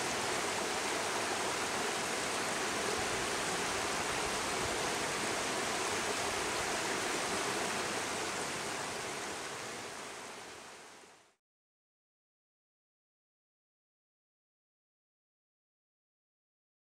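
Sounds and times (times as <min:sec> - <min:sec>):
river rushing over rocks: 0:00.0 - 0:11.2.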